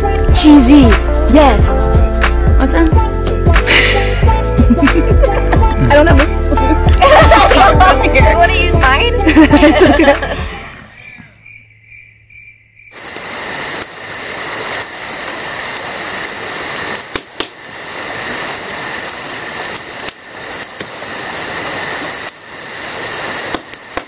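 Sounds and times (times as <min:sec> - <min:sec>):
fire popping: 0:03.6 - 0:10.4, 0:12.9 - 0:24.0
wood fire crackling: 0:03.7 - 0:10.4, 0:12.9 - 0:24.0
crickets chirping: 0:06.5 - 0:24.0.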